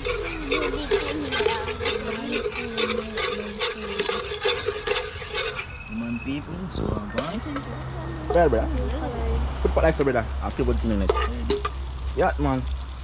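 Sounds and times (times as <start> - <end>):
metal spoon stirring in metal pot: 0.0 - 6.0, 10.4 - 11.9.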